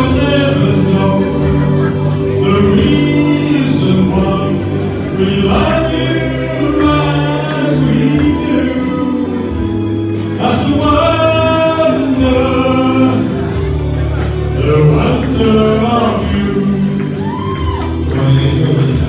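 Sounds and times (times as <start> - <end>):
backing music: 0.0 - 19.0
man singing into microphone: 0.0 - 19.0.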